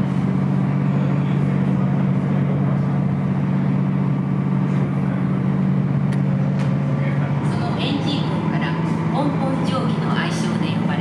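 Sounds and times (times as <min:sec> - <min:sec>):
boat engines droning: 0:00.0 - 0:11.0.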